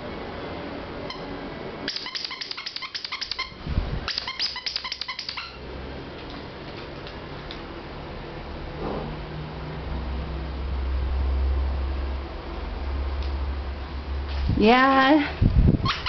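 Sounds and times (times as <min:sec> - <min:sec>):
dog toy squeaking: 0:01.1 - 0:01.3, 0:01.9 - 0:05.6.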